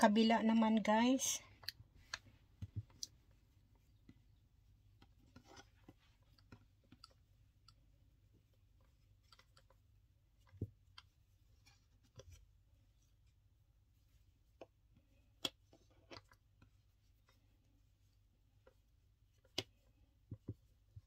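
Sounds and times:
faint clicks of handling cord: 0:01.5 - 0:04.2, 0:08.8 - 0:12.4.

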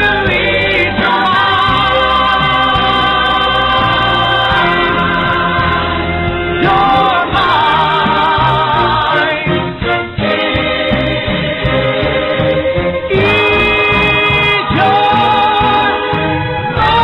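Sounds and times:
slow sung ballad: 0:00.0 - 0:17.0.

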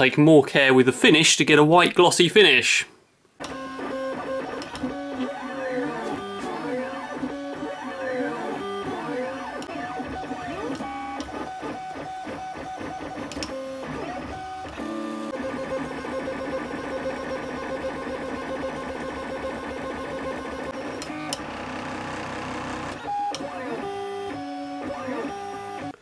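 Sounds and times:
printer stepper motors whining: 0:03.4 - 0:25.9.

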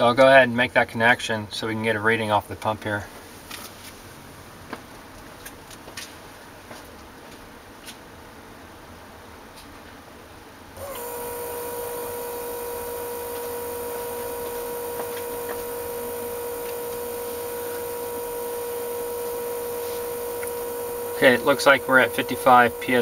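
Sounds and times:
electric fuel pump whine: 0:10.8 - 0:23.0.

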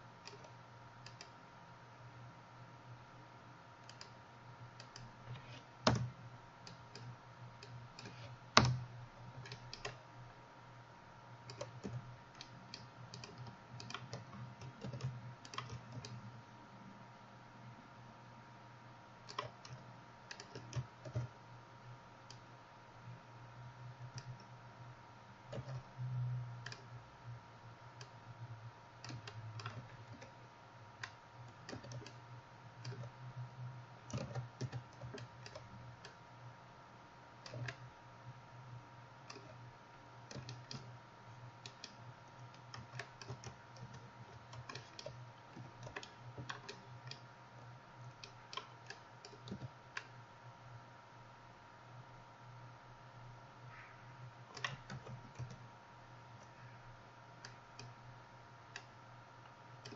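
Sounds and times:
faint electrical hum: 0:00.0 - 0:59.9
computer mouse clicks: 0:00.2 - 0:01.4, 0:03.8 - 0:04.2, 0:04.8 - 0:06.1, 0:06.7 - 0:10.0, 0:11.4 - 0:16.3, 0:19.2 - 0:21.4, 0:24.1 - 0:24.5, 0:25.5 - 0:26.9, 0:29.0 - 0:30.4, 0:31.0 - 0:32.2, 0:32.8 - 0:33.2, 0:34.1 - 0:36.2, 0:37.4 - 0:37.9, 0:39.2 - 0:39.7, 0:40.3 - 0:40.9, 0:41.6 - 0:47.3, 0:48.0 - 0:50.2, 0:54.5 - 0:55.6, 0:57.4 - 0:58.0, 0:58.7 - 0:59.9
keyboard keystrokes: 0:04.8 - 0:06.1, 0:08.0 - 0:08.8, 0:19.3 - 0:21.3, 0:34.1 - 0:36.2.

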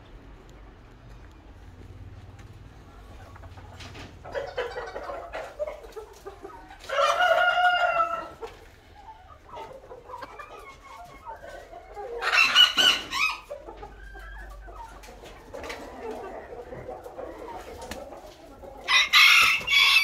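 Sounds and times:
chickens clucking: 0:00.0 - 0:20.0
roosters crowing: 0:06.6 - 0:09.4, 0:11.9 - 0:14.7, 0:15.6 - 0:20.0.

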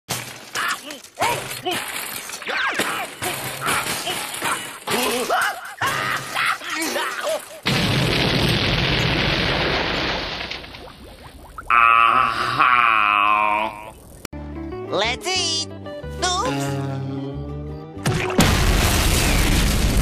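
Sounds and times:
cartoon explosion boom: 0:18.0 - 0:20.0.

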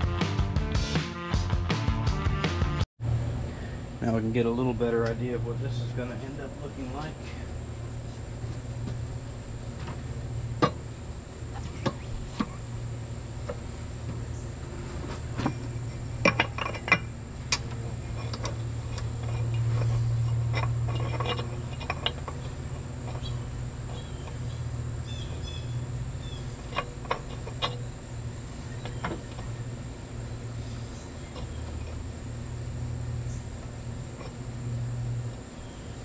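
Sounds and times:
steady low hum: 0:03.0 - 0:36.0
metal parts clinking: 0:15.3 - 0:29.8.

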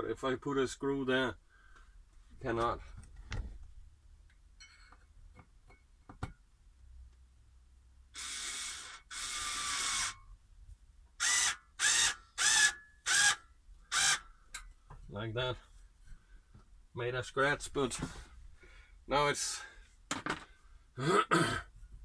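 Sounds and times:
cordless drill driving screw: 0:08.2 - 0:10.3, 0:11.2 - 0:14.3.

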